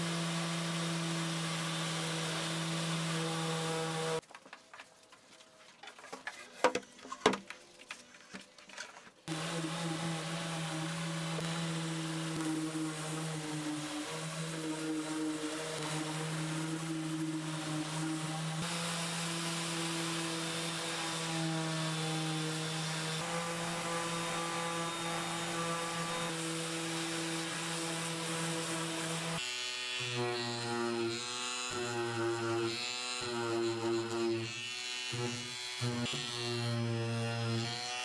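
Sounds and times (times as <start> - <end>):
orbital sander on wood: 0.0 - 4.2, 9.3 - 38.0
detail sander wavering pitch: 9.3 - 38.0.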